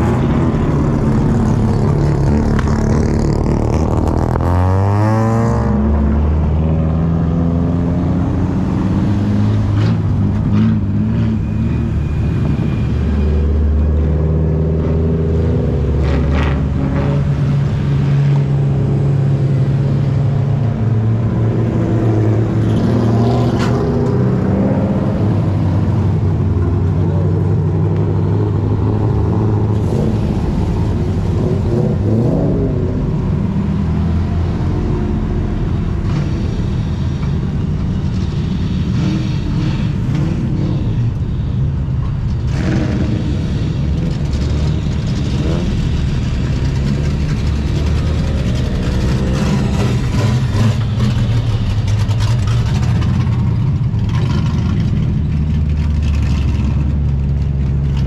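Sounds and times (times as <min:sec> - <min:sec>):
car engines running: 0:00.0 - 0:58.0
car engine revving: 0:42.4 - 0:58.0.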